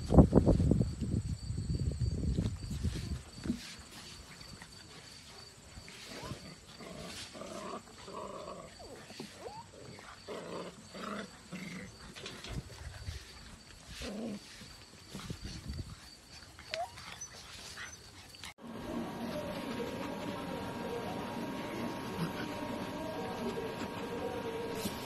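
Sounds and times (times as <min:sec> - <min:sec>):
puppies growling in play: 0:04.3 - 0:25.0
puppy whines: 0:09.3 - 0:10.0, 0:16.6 - 0:18.1.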